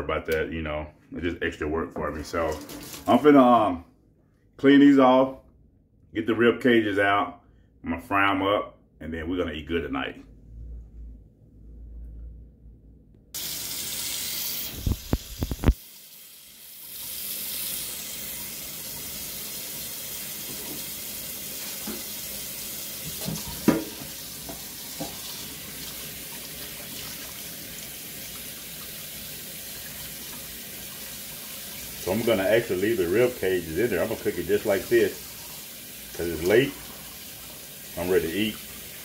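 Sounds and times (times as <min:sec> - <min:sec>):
tap running into steel sink: 0:23.0 - 0:25.4.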